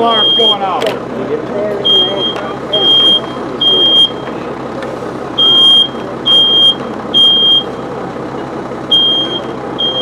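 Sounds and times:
smoke alarm beeping: 0:00.0 - 0:00.7, 0:01.8 - 0:04.3, 0:05.4 - 0:07.8, 0:08.9 - 0:10.0.

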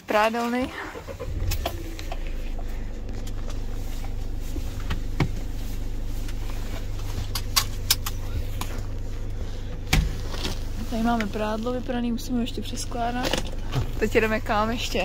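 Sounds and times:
diesel engine idling: 0:00.1 - 0:15.0
light clicks in cab: 0:06.2 - 0:09.0.

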